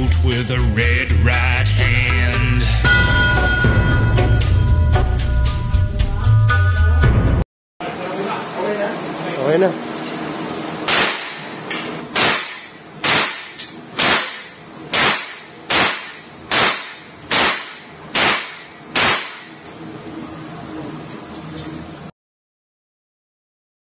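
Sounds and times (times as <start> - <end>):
gunshots echoing indoors: 10.9 - 11.5, 12.1 - 19.6.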